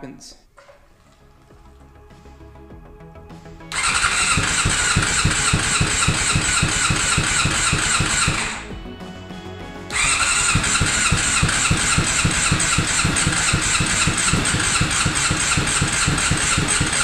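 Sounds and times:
motorcycle engine cranking on starter: 3.7 - 8.7, 9.9 - 17.0.

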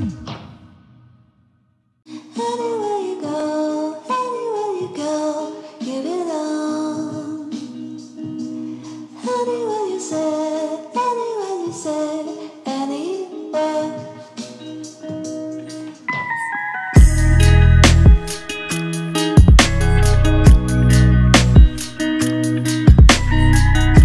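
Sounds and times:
melody with gliding notes: 16.1 - 24.0.

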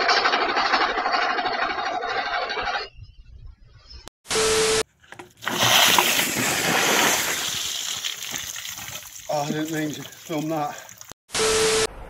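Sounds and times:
water gushing onto wet ground: 5.4 - 11.2.

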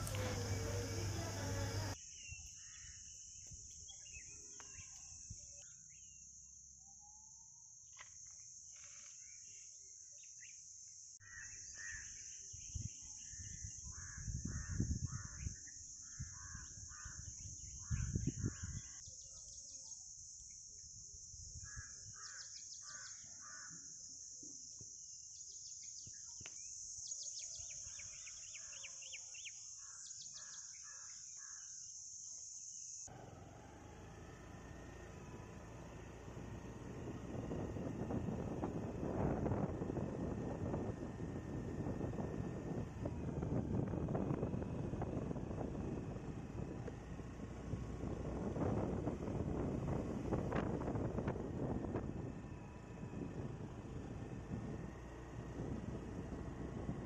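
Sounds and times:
birds calling: 0.0 - 6.2, 11.2 - 19.5, 25.8 - 31.6
wind rumble on microphone: 12.5 - 19.1, 36.4 - 57.0.

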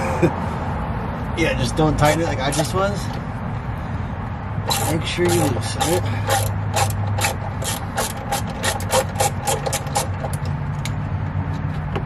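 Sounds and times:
ratchet wrench clicking: 2.5 - 3.2, 4.6 - 11.0.

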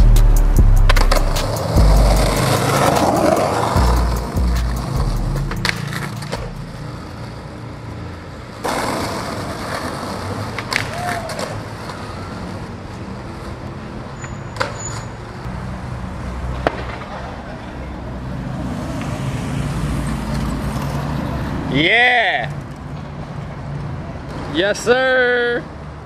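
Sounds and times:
street traffic: 0.0 - 26.0
skateboard clacks: 0.9 - 7.2, 8.6 - 12.6, 16.5 - 17.4
skateboard wheels rolling on asphalt: 0.9 - 21.6, 22.3 - 26.0.

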